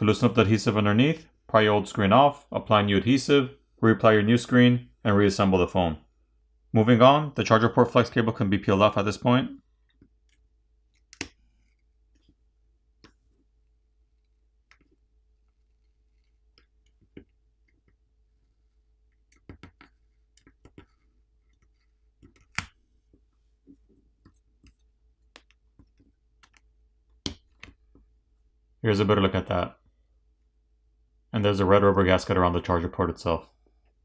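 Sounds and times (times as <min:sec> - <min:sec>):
faint steady hum: 0:00.0 - 0:34.0
faint clicks and ticks: 0:09.8 - 0:28.1.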